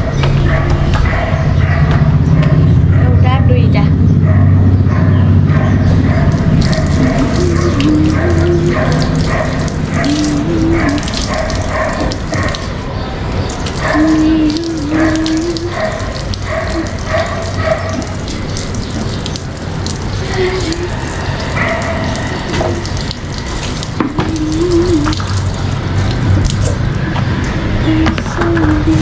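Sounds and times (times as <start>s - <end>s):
water running from a tap: 6.3s - 12.8s, 13.4s - 27.1s.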